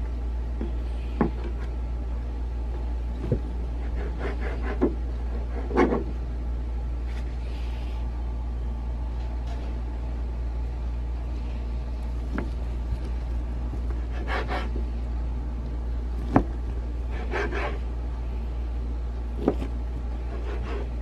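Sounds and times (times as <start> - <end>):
steady low hum: 0.0 - 21.0
knife scraping slices: 13.9 - 14.8, 17.1 - 17.8, 19.4 - 21.0.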